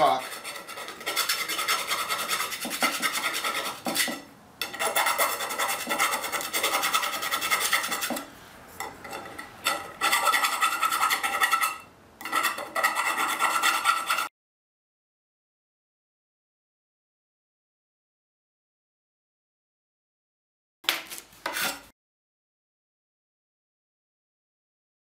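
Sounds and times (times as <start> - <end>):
hand file scraping copper pipe: 0.0 - 14.3, 21.4 - 21.9.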